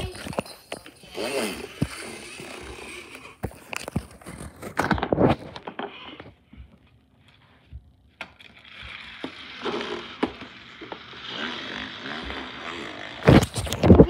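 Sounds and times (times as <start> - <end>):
toy car scraping on carpet: 1.0 - 4.6, 8.6 - 13.9.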